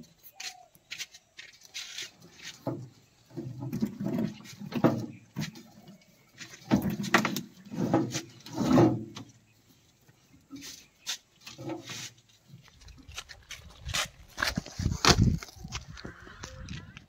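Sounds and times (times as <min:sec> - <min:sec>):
rope dragged over metal: 0:07.2 - 0:09.2.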